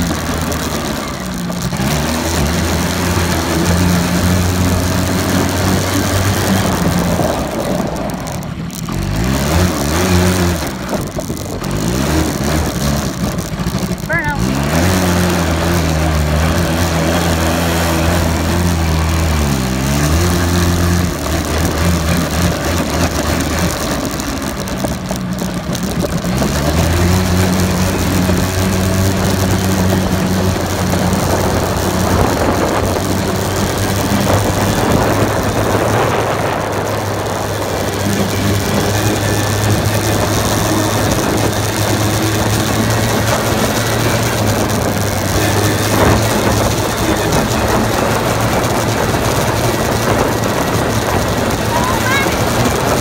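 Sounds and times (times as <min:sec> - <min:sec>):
atv engine running: 0:00.0 - 0:53.0
wind on microphone: 0:28.3 - 0:42.5, 0:43.1 - 0:53.0.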